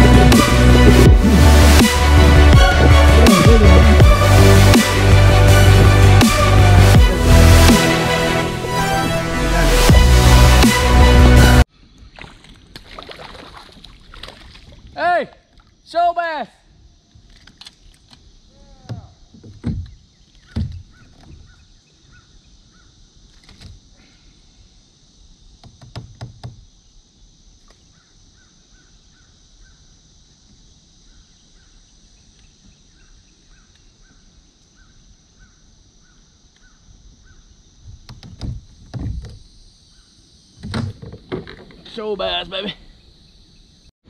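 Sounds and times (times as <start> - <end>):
dull knocks: 18.8 - 21.5, 25.6 - 26.6, 37.9 - 39.4
steady high hiss: 21.5 - 40.8.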